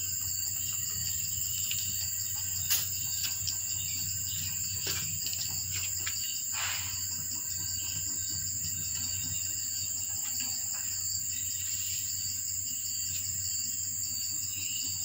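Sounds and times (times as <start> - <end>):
insects chirring: 0.0 - 15.0.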